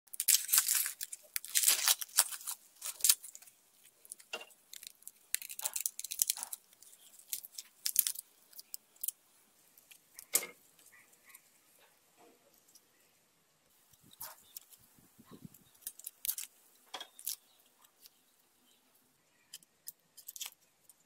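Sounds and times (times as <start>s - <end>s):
garlic skins crackling and tearing: 0.1s - 9.2s, 15.4s - 18.2s, 19.5s - 21.0s.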